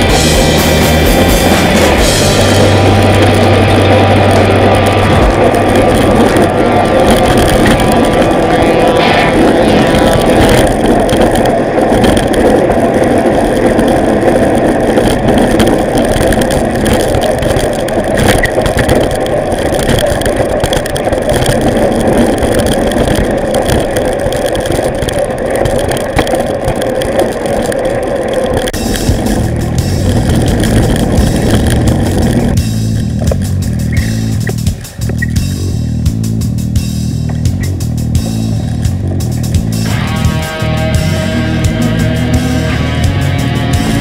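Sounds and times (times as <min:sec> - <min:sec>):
bicycle tyre rumble on asphalt: 0:00.0 - 0:44.0
wind buffeting microphone: 0:00.0 - 0:44.0.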